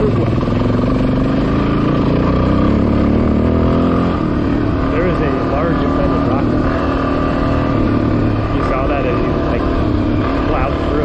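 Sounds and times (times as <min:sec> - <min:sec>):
motorcycle engine running: 0:00.0 - 0:11.0.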